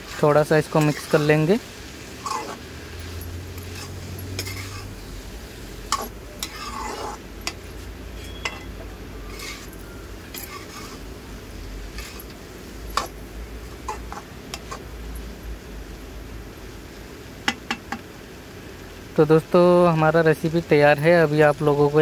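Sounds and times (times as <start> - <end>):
metal spatula scraping metal pan: 0.0 - 1.5, 2.2 - 5.2, 5.8 - 11.2, 11.8 - 13.2, 13.8 - 14.9.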